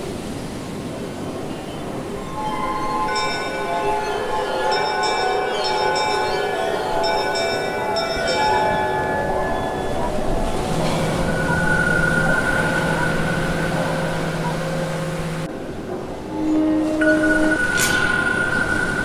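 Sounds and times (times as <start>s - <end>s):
ringing bell-like struck tones: 2.2s - 15.5s, 16.3s - 19.0s
rushing noise: 8.8s - 19.0s.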